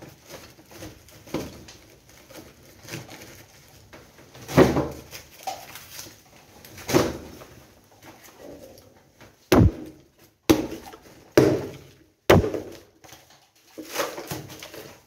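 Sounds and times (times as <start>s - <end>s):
sharp wooden knocks: 9.5s - 9.9s, 12.3s - 12.8s.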